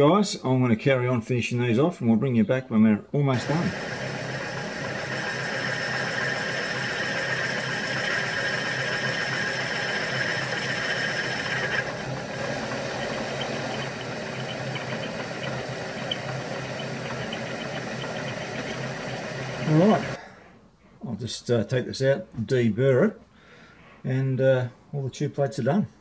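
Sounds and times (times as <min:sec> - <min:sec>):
high machine whine: 0:03.3 - 0:20.2
milling machine hum: 0:03.3 - 0:20.2.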